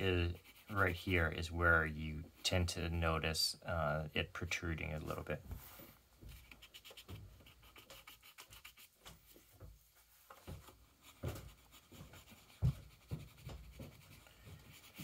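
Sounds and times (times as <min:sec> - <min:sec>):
pencil scratching on paper: 0:00.0 - 0:01.4, 0:06.3 - 0:09.0, 0:10.9 - 0:15.0.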